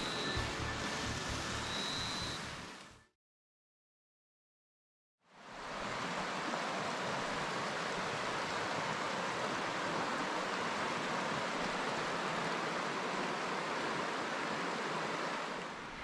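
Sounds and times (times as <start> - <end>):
water rushing over rocks: 5.4 - 16.0.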